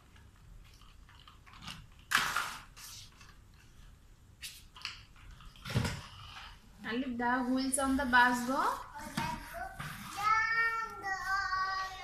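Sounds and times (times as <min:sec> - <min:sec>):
toy scraping over cardboard: 0:07.4 - 0:10.4.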